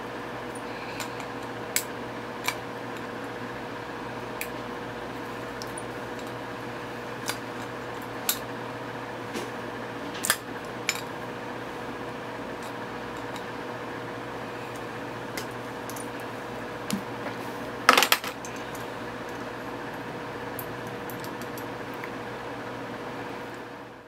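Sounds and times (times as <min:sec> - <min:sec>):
steady background hum: 0:00.0 - 0:24.0.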